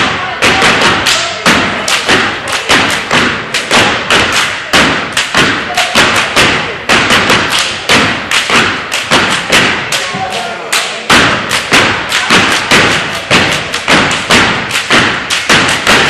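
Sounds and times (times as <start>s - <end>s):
hand claps: 0.0s - 16.0s.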